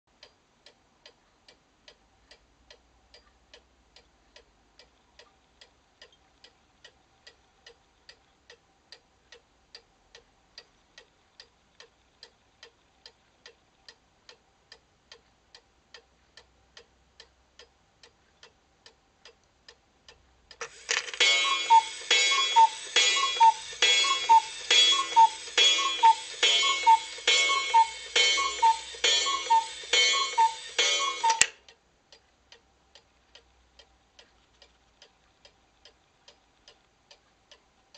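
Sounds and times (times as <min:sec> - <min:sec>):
clock ticking: 0:00.1 - 0:37.9
cuckoo clock calling: 0:20.6 - 0:31.7.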